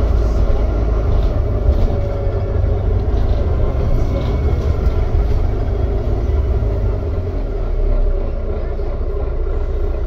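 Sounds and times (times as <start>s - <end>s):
bus engine and road rumble: 0.0s - 10.0s.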